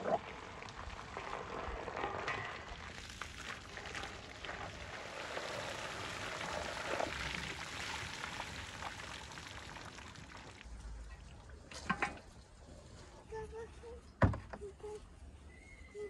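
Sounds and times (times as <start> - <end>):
water splashing through metal basin: 0.0 - 12.3.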